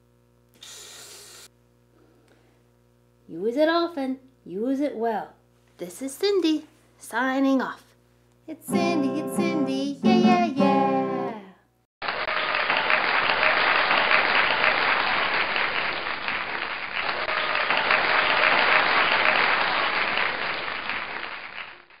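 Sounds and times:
crowd applause: 12.0s - 22.0s.

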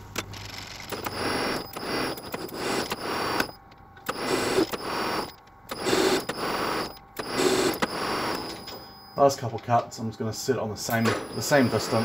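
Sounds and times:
high machine whine: 0.0s - 12.0s
metal lathe running: 4.1s - 8.9s, 11.0s - 12.0s.

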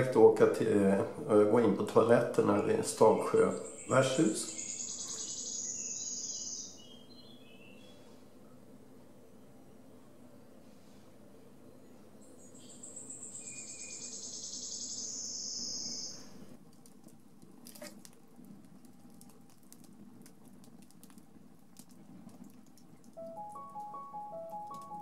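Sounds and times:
cricket-like chirring: 3.6s - 6.8s, 12.4s - 16.4s
campfire crackling and popping: 16.6s - 23.9s.

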